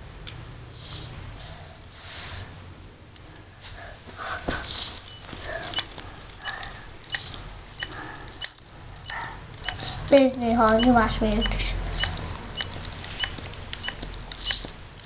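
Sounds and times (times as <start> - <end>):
low steady hum: 0.0 - 15.0
pneumatic valve clicks: 4.7 - 10.1, 10.8 - 14.7.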